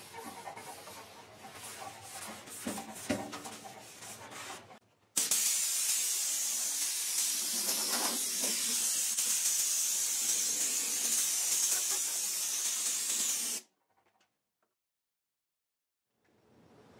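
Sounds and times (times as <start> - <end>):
compressed air blow gun hissing: 5.2 - 13.6.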